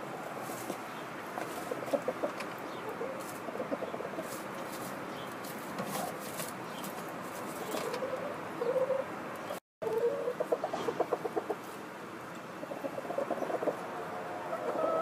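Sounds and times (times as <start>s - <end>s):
hens clucking softly: 1.3s - 4.8s, 9.8s - 15.0s.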